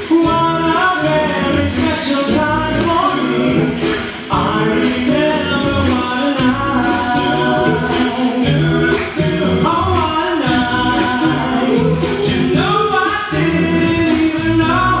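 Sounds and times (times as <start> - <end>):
male vocal group singing harmony: 0.0 - 15.0
steady percussive beat: 0.0 - 15.0.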